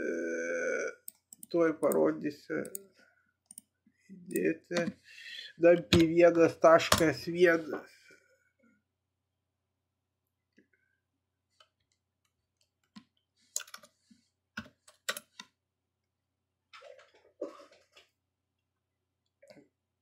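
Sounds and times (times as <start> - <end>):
computer keyboard keystrokes: 14.6 - 15.4.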